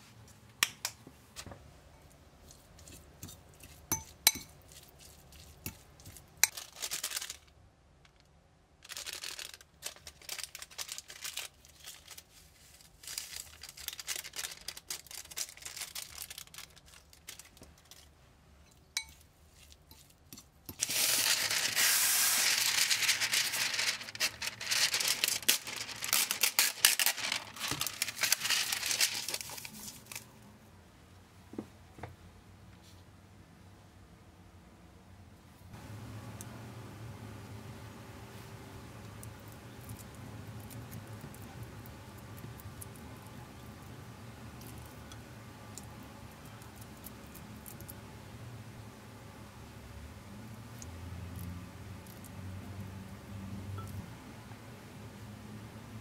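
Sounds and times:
paper crinkling: 4.7 - 18.2, 20.7 - 30.3.

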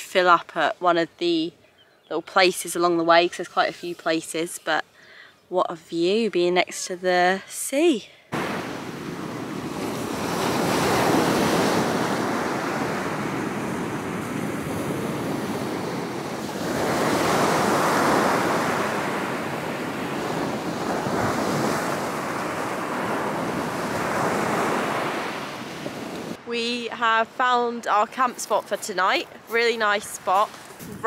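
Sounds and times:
waves washing up shingle beach: 8.4 - 26.4.

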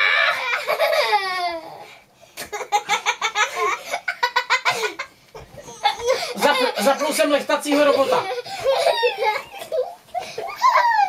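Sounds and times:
boy shrieking: 0.0 - 0.6
boy giggling: 0.4 - 1.7, 2.4 - 11.0.

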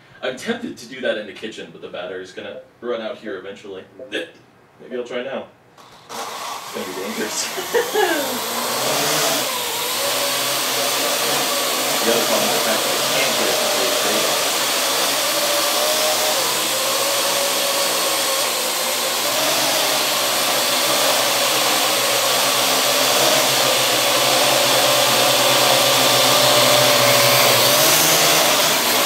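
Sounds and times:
drone rotors whirring: 5.8 - 29.0.

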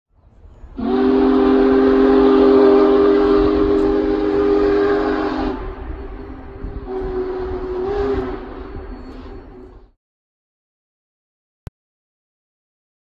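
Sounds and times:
steam locomotive chime whistle: 0.5 - 10.0.

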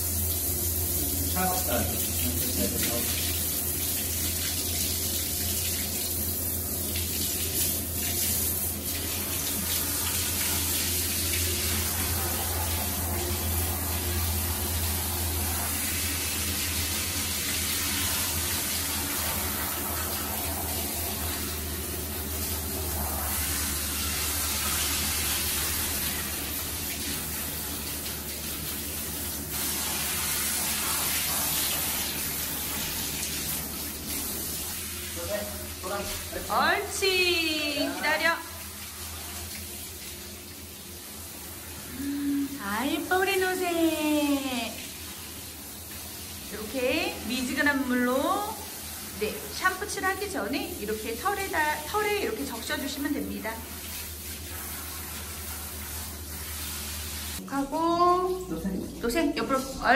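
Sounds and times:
low steady hum: 0.0 - 47.6
tap water running: 0.0 - 59.9.

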